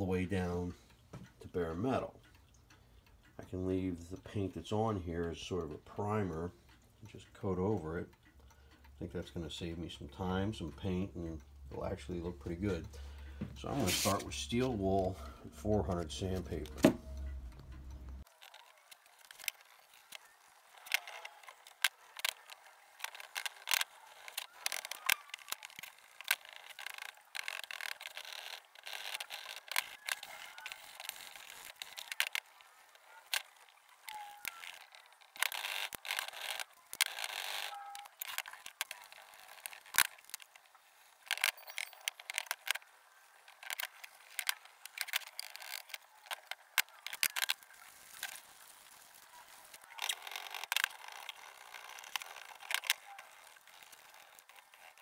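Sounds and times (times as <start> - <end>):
sandpaper rubbing on metal: 13.8 - 14.2.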